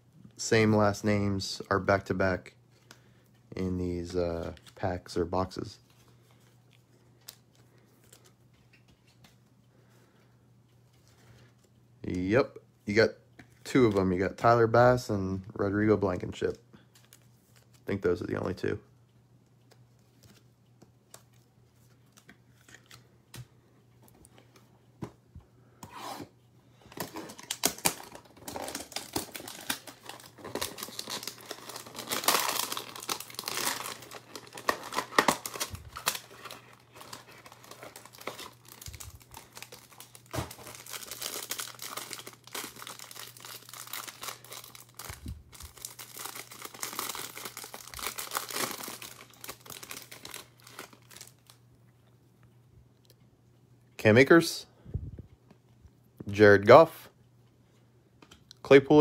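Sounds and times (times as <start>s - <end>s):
plastic wrapper crinkling and tearing: 26.9s - 51.6s.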